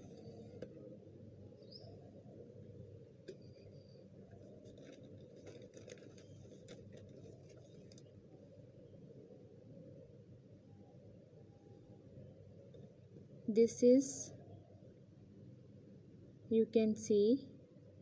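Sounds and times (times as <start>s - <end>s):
plastic bag crinkling: 4.3s - 8.1s.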